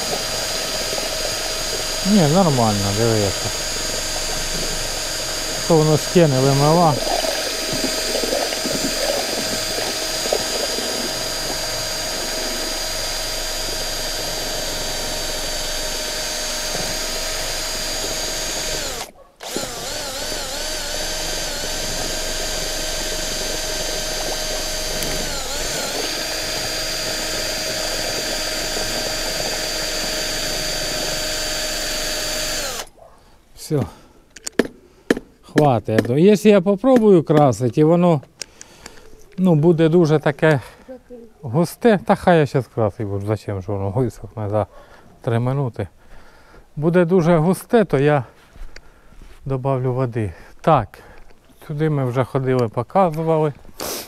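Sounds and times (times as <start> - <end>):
drill motor whine: 0.0 - 32.9.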